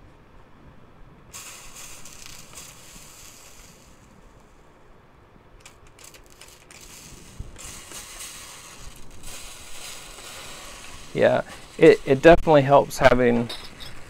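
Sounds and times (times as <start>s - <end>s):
spray bottle spritzing: 1.3s - 4.1s, 5.6s - 12.4s
hot metal hissing and sizzling: 1.3s - 4.6s, 5.6s - 14.0s.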